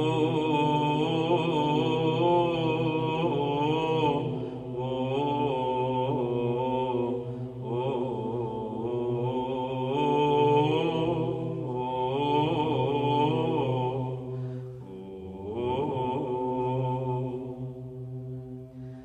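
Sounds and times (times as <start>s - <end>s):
person chanting melody: 0.0s - 14.2s
low held drone: 0.0s - 19.0s.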